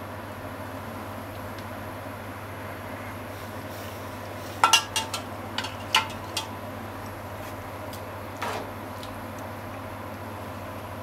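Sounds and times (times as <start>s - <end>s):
steady low hum: 0.0s - 11.0s
utensil clinking against frying pan: 4.6s - 6.5s.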